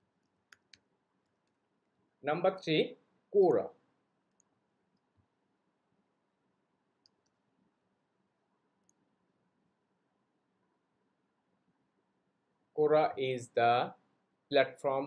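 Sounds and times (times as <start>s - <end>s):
keyboard and mouse clicks: 0.2s - 1.6s.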